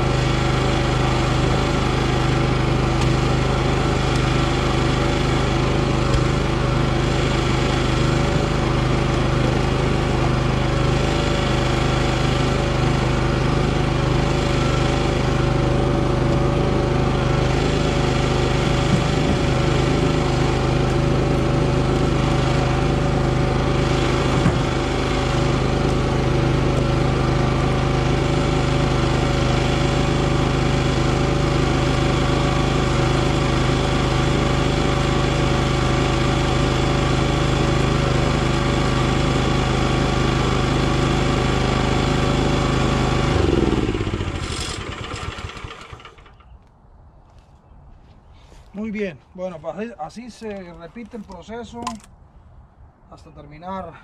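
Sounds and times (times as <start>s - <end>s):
log splitter engine running: 0.0s - 46.6s.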